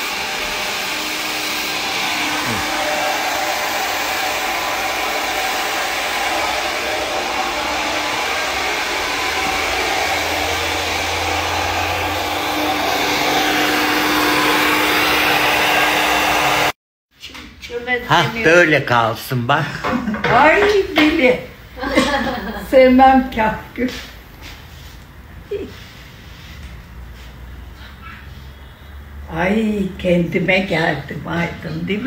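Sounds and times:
hair dryer blowing: 0.0 - 16.8.

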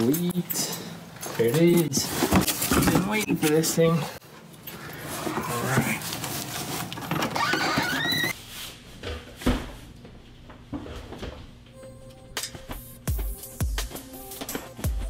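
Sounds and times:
short rising squeaks: 7.2 - 8.4.

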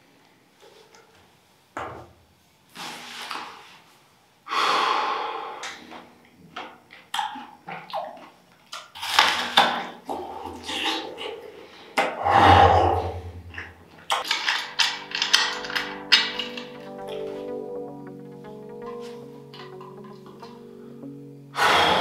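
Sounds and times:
man breathing heavily: 4.5 - 6.0, 11.6 - 13.4, 21.6 - 22.0.

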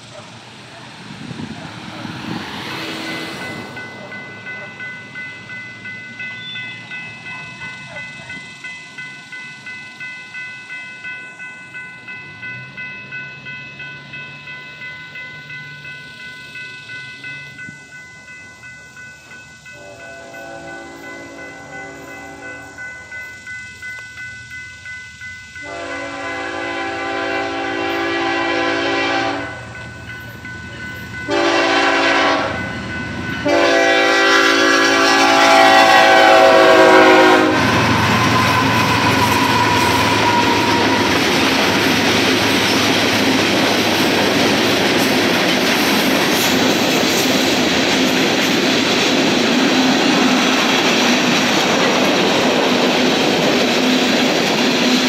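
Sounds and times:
train wheels clattering on rail: 0.0 - 55.0
locomotive horn chord: 19.8 - 23.1, 25.6 - 29.7, 31.3 - 32.7, 33.4 - 41.2.

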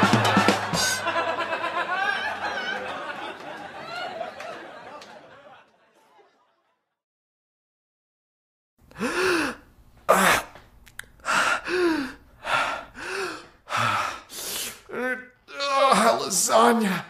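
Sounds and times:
man gasping loudly: 8.9 - 10.6, 11.2 - 15.0
man groaning raspily: 14.9 - 17.0.

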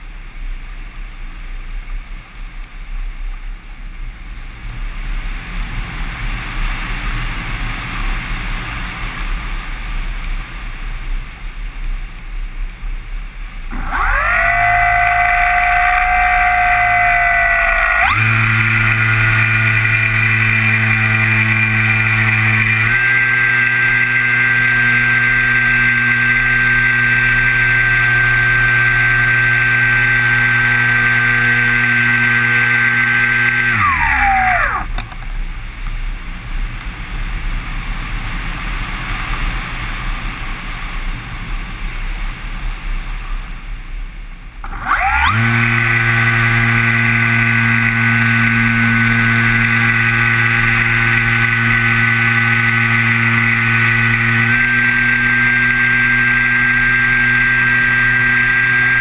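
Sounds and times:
propeller motor whine: 13.6 - 35.8, 44.6 - 59.0.

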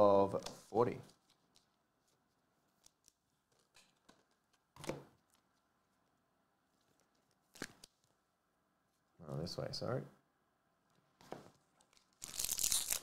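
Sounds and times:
cards being handled: 10.9 - 13.0.

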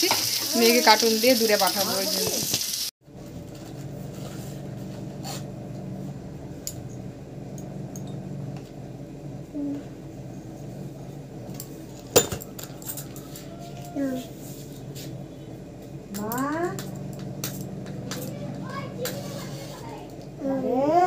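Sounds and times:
steady low hum: 3.1 - 21.0
dishes and utensils clinking: 11.5 - 14.0, 16.1 - 19.8.

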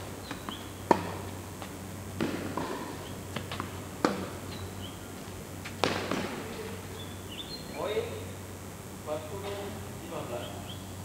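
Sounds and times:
tennis ball hits and bounces: 0.2 - 1.3, 2.2 - 4.7, 5.6 - 6.6.

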